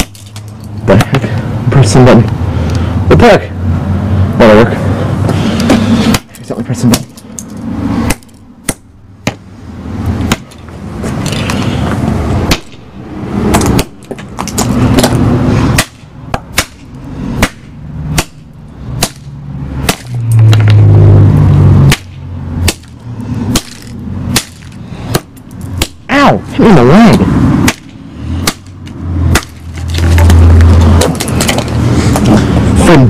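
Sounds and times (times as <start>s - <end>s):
tool smashing plastic case on gravel: 29.3s - 32.3s.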